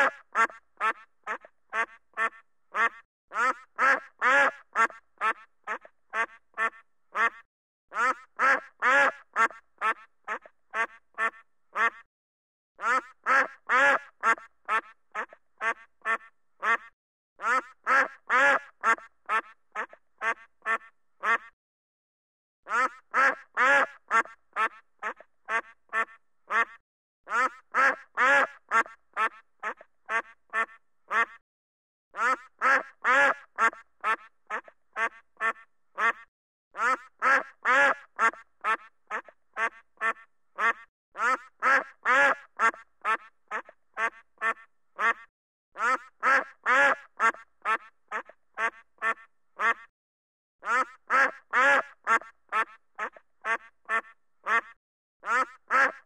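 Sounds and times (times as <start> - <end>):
duck quacking: 0.0 - 12.1, 12.8 - 21.6, 22.7 - 31.4, 32.2 - 49.9, 50.6 - 56.0.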